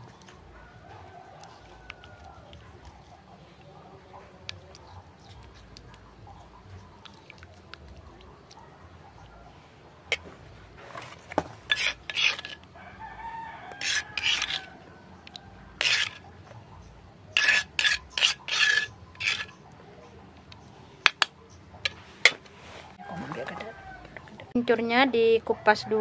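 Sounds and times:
rooster crowing: 0:00.6 - 0:02.6, 0:12.8 - 0:15.5, 0:23.0 - 0:24.5, 0:25.2 - 0:26.0
tofu scraping on stone mortar: 0:10.1 - 0:12.7, 0:13.7 - 0:14.8, 0:15.8 - 0:16.2, 0:17.4 - 0:19.6.

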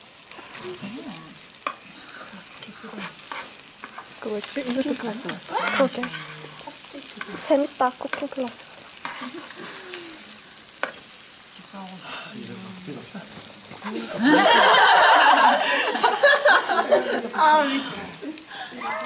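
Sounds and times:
food sizzling in hot oil: 0:00.0 - 0:19.0
metal tongs scraping a pan: 0:00.2 - 0:11.2.

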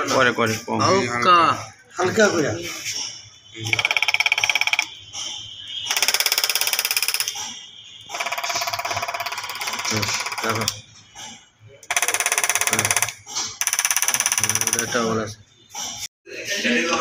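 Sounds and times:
diesel injectors chattering clicks: 0:03.5 - 0:10.8, 0:11.8 - 0:15.0.

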